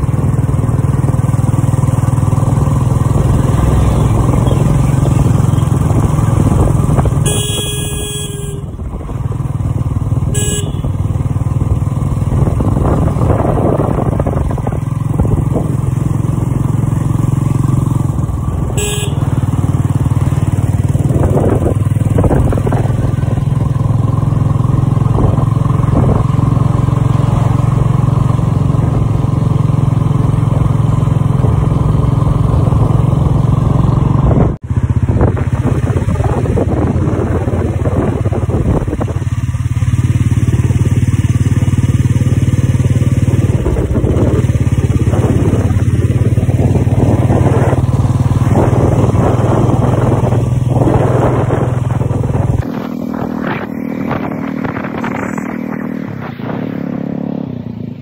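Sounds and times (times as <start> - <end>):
motorcycle engine running: 0.0 - 58.0
vehicle horn: 7.1 - 9.0, 10.2 - 11.2, 18.6 - 19.8.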